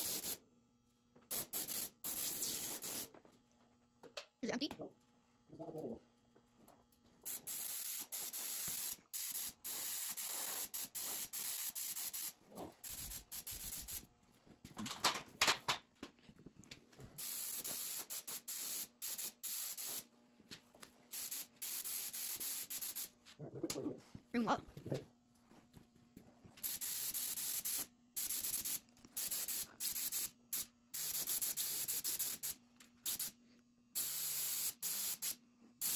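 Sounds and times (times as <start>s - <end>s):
spray gun hissing: 1.3s - 3.1s, 7.3s - 14.0s, 17.2s - 20.0s, 21.1s - 23.1s, 26.6s - 33.3s, 34.0s - 35.9s.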